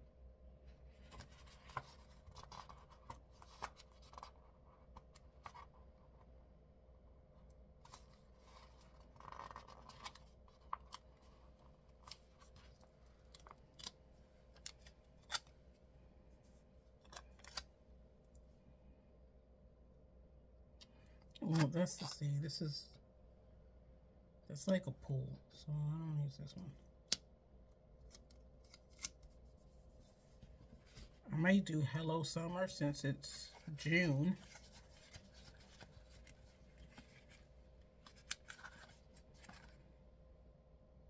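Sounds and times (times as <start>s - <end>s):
paper rustling: 0.9s - 5.8s, 7.8s - 14.0s, 33.4s - 39.8s.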